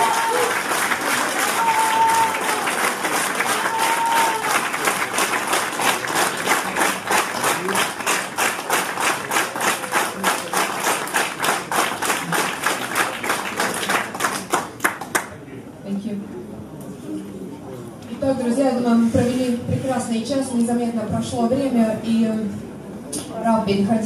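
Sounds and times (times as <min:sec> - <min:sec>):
audience clapping in rhythm: 0:00.0 - 0:15.4.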